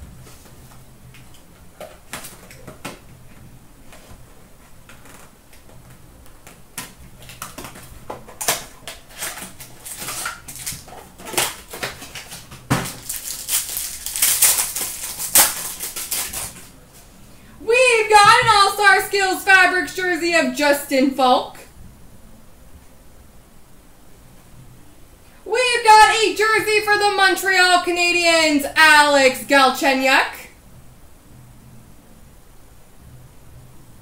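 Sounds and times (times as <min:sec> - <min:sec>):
foil wrapper crinkling: 0:07.2 - 0:16.8.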